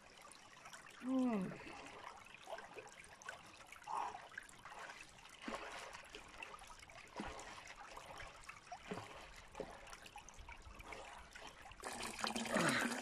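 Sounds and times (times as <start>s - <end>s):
soft water plops: 0.0s - 13.0s
water lapping over stones: 0.0s - 13.0s.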